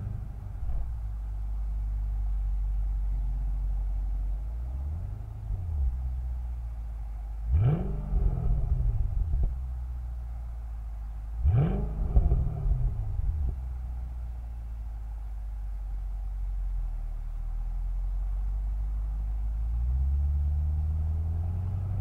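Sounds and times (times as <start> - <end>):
car exhaust droning: 0.0 - 22.0
engine revving: 7.4 - 9.6, 11.4 - 13.6
exhaust cracks: 7.4 - 9.8, 11.3 - 13.8.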